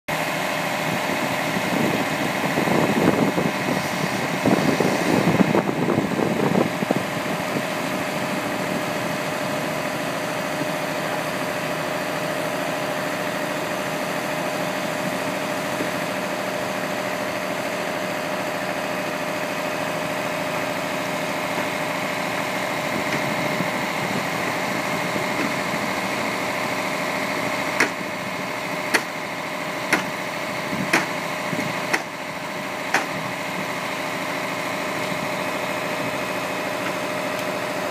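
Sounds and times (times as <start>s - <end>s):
truck engine idling with whine: 0.1s - 37.9s.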